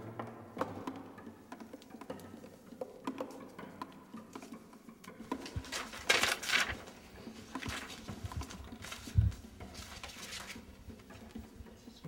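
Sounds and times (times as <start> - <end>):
paper pages rustling: 5.2 - 11.4.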